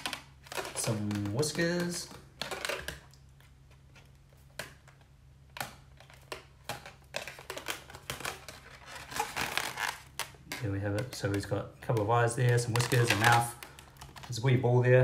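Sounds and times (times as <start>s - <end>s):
balloon rubber squeaking: 5.7s - 14.3s.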